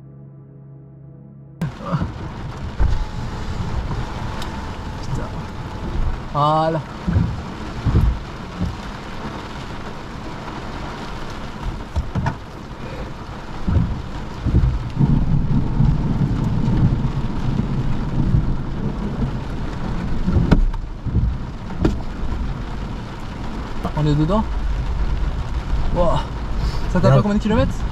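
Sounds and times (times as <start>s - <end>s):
heavy rain on car roof: 1.6s - 27.9s
thunder rumble: 1.6s - 27.9s
sharp knocks: 7.0s - 8.9s, 13.6s - 15.2s, 20.3s - 22.1s.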